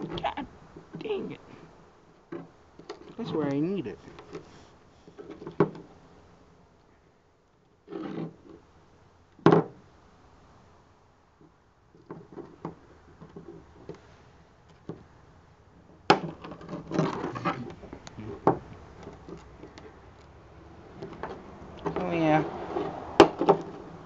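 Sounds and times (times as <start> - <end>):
handling taps clicks and scrapes: 4.0 - 5.9, 16.1 - 22.1.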